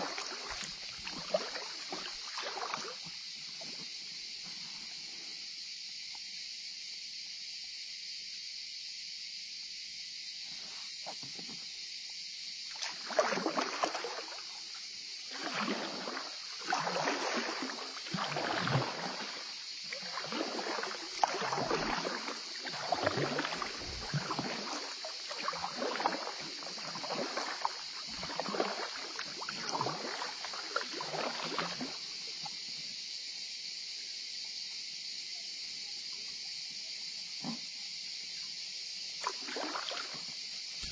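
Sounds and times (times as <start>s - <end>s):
kayak paddle strokes in water: 0.0s - 4.6s, 12.7s - 32.6s, 39.2s - 40.9s.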